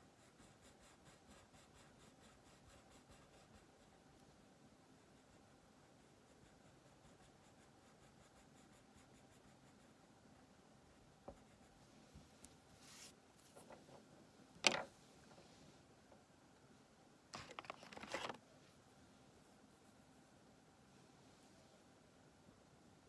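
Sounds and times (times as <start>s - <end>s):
crayon scratching on paper: 0.0s - 4.0s, 5.0s - 10.0s, 11.3s - 11.8s
short rustle: 12.0s - 13.9s.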